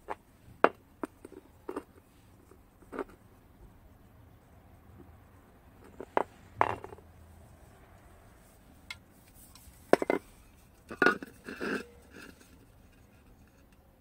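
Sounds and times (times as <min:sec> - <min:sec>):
rattling scrape: 0:09.2 - 0:13.8.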